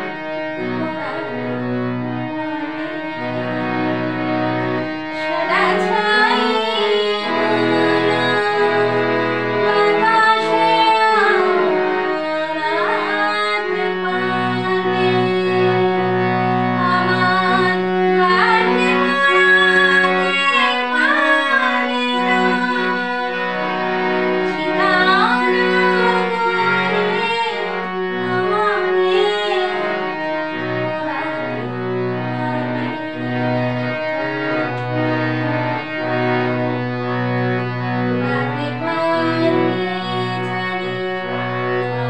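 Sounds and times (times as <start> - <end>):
harmonium sustained notes: 0.0 - 42.0
woman singing: 0.8 - 1.4, 2.4 - 3.1, 5.1 - 9.0, 9.7 - 15.9, 16.8 - 23.4, 24.4 - 29.9, 30.9 - 31.7, 32.3 - 33.3, 38.2 - 41.0.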